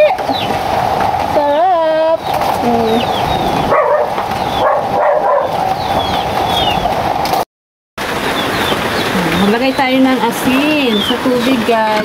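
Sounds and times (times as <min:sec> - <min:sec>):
high bird chirps: 0:02.2 - 0:06.9.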